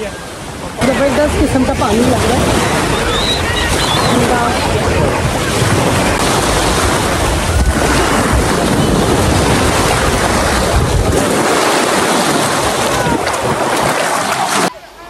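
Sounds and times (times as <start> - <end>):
wind buffeting microphone: 0.0 - 14.7
small waves breaking in surf: 0.0 - 15.0.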